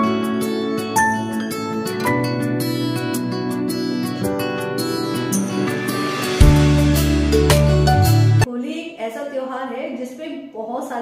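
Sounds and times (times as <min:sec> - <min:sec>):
gentle plucked guitar music: 0:00.0 - 0:08.5.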